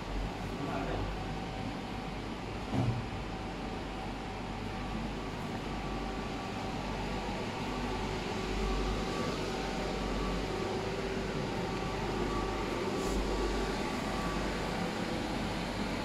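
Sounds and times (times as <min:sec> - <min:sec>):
faint steady humming tones: 0:00.0 - 0:16.0
electric blower fan rushing air: 0:06.0 - 0:16.0.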